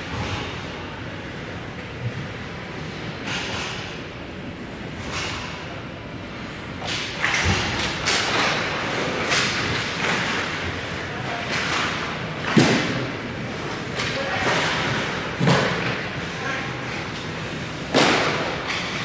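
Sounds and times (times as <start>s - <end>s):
sticks and puck clattering: 6.8s - 19.0s.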